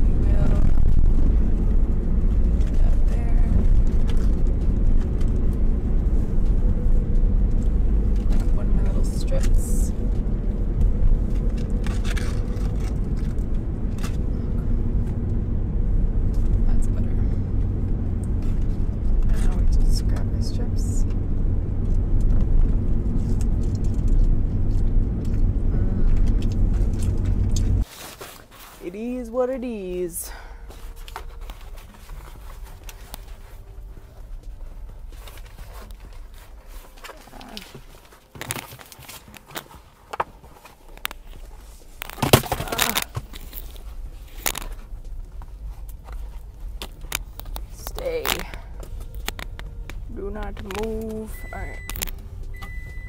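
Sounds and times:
car engine rumble: 0.0 - 53.0
paper packaging crackling: 26.3 - 29.2, 30.6 - 52.2.

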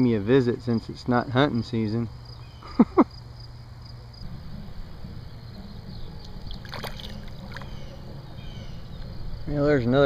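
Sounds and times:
crickets chirping: 0.0 - 10.0
fish splashing at water surface: 6.4 - 7.9.

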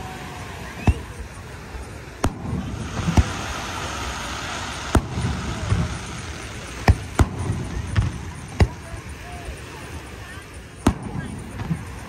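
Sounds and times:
firework shells bursting: 0.9 - 9.2, 10.8 - 12.0
low rumble: 2.2 - 8.8.

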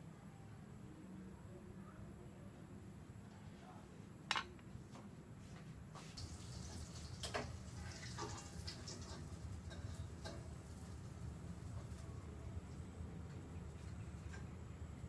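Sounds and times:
utensil scraping in a pan: 6.0 - 10.9.

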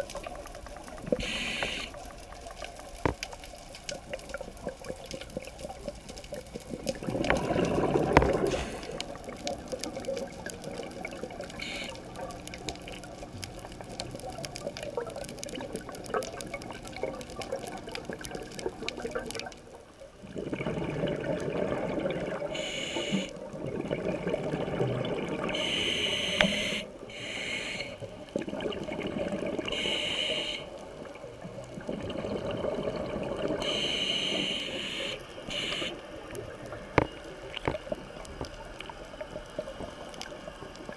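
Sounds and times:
regulator inhalation hiss: 1.1 - 2.0, 8.5 - 9.0, 11.6 - 12.1, 22.5 - 23.3, 25.5 - 28.1, 29.7 - 30.8, 33.6 - 36.0
diver exhaling bubbles: 6.7 - 9.3, 20.2 - 30.7, 31.7 - 36.0.

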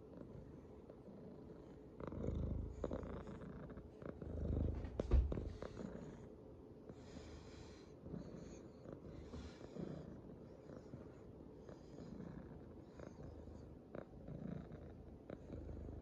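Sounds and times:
cat purring: 0.0 - 16.0
sharp bump on microphone: 4.8 - 5.5.

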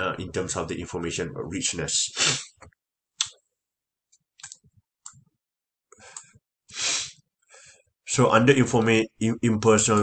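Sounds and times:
man breathing in: 5.9 - 7.9.

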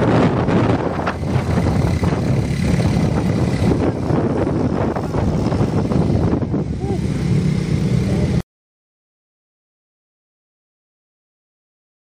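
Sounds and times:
vehicle engine: 0.0 - 8.4
wind noise: 0.0 - 8.4.

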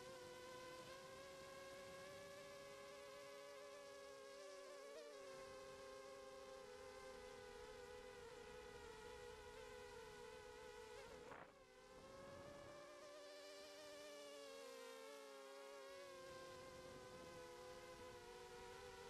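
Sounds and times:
quadcopter motors whining: 6.8 - 19.0.

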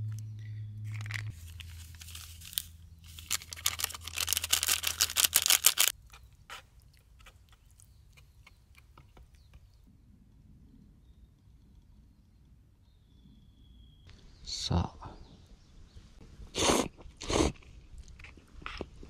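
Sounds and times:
chopsticks clicking and scraping bowl: 4.8 - 9.7.

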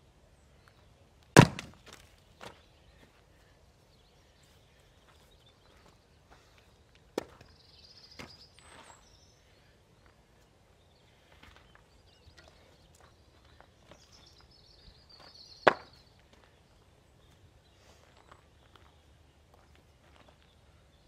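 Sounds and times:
wood logs knocking: 1.4 - 2.0.

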